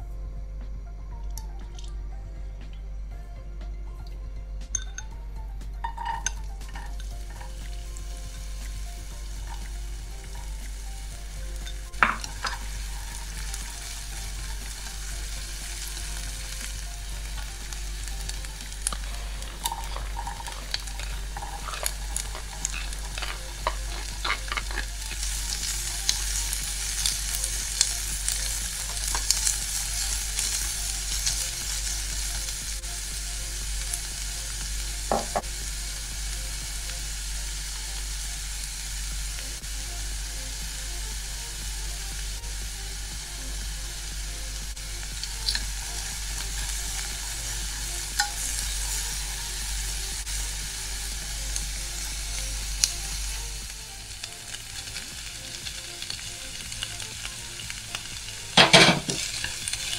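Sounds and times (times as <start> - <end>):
onion sizzling in pan: 4.7 - 59.9
utensil tapping pan: 11.6 - 13.7, 35.1 - 35.5, 58.6 - 59.9.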